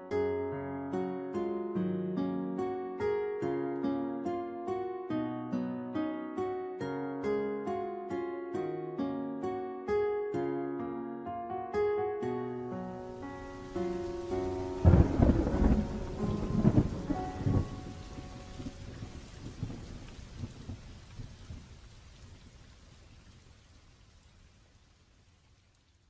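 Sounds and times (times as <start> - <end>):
plucked background music: 0.8 - 18.6
loud rumbling crackle: 14.3 - 21.8.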